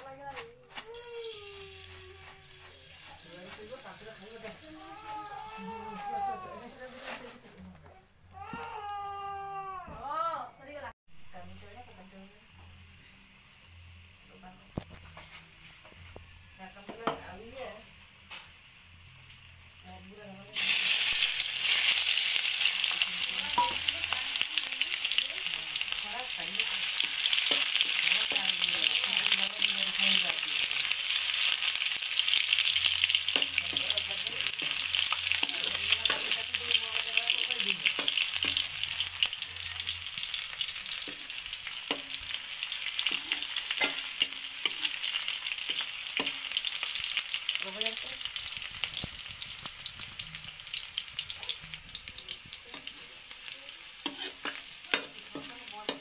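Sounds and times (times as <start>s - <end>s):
onions sizzling in oil: 0.0s - 7.7s, 11.3s - 56.0s
ladle scraping pan: 1.8s - 5.5s, 54.0s - 56.0s.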